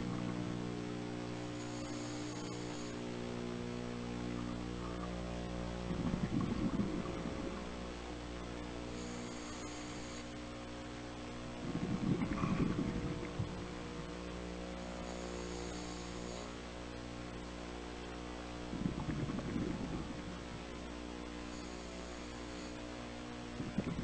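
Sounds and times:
steady hum: 0.0s - 24.0s
regulator inhale hiss: 1.5s - 3.1s, 8.8s - 10.4s, 14.8s - 16.7s, 21.3s - 23.0s
rush of exhaled bubbles: 5.8s - 7.8s, 11.6s - 13.7s, 18.7s - 20.6s, 23.6s - 24.0s.

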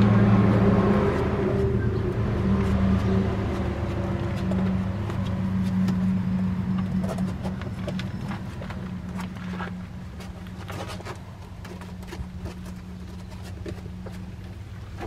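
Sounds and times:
low engine hum: 0.0s - 15.0s
puppy claws scratching concrete: 0.4s - 15.0s.

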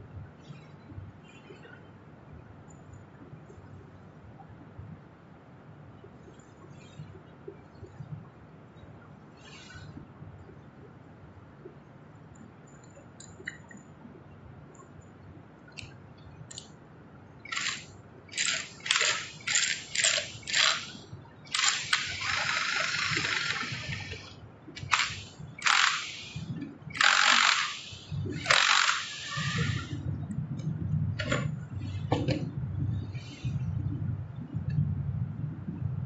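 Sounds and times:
parts being handled: 17.4s - 24.2s
cordless power driver whirring: 17.5s - 20.9s, 21.5s - 30.0s.

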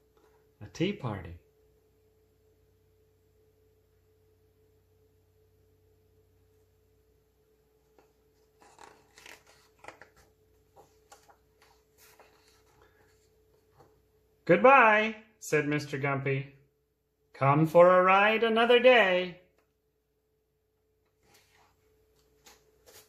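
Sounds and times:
faint steady hum: 0.0s - 23.0s
book page rustling: 7.9s - 14.0s, 21.2s - 23.0s.

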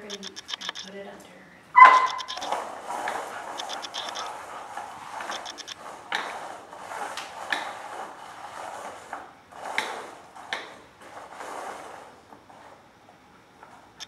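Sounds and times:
camera autofocus motor ticking: 0.0s - 1.0s, 2.0s - 2.6s, 3.5s - 4.4s, 5.2s - 5.8s
plastic cups sliding on wooden floor: 1.8s - 3.6s, 4.2s - 12.8s.

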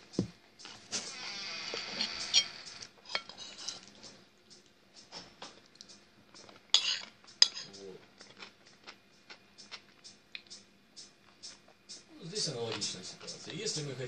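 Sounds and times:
fork scraping ceramic plate: 1.7s - 4.0s, 6.7s - 8.4s
close-up chewing: 8.0s - 10.6s.

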